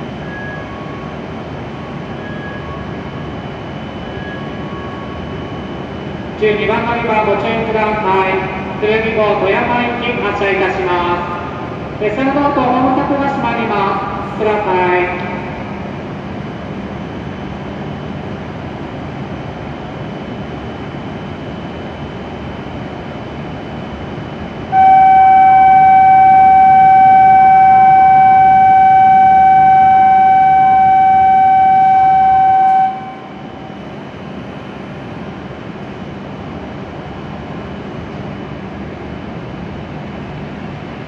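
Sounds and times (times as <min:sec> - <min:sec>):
steady signal tone: 0:24.7 - 0:35.2.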